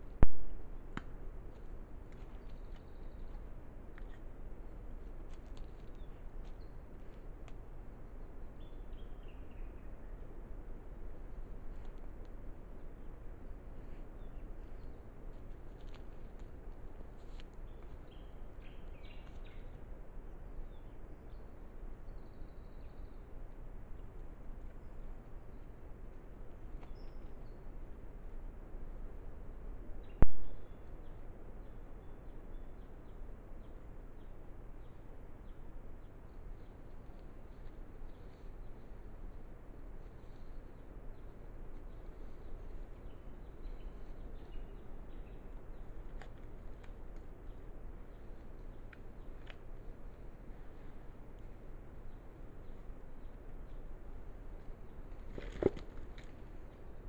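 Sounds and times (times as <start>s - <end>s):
microphone hiss and rumble: 0.0s - 57.0s
outdoor background noise: 0.0s - 57.0s
distant bird calls: 40.0s - 57.0s
faint clicks: 48.6s - 49.6s.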